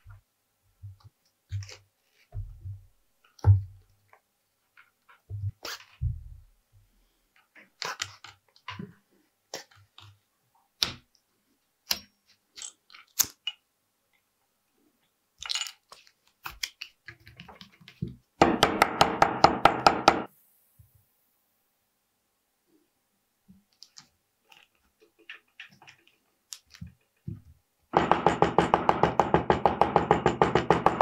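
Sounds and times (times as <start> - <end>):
small clicks of hand tools: 11.8 - 13.6.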